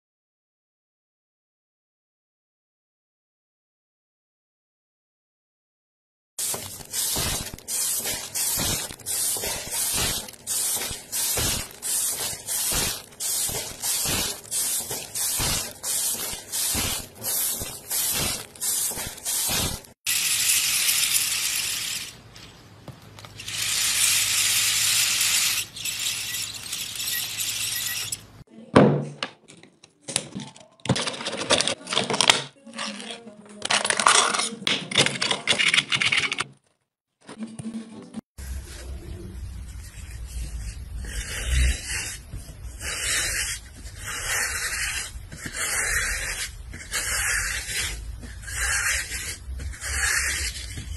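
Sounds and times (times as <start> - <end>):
thin tiled sheets clacking: 6.4 - 28.3.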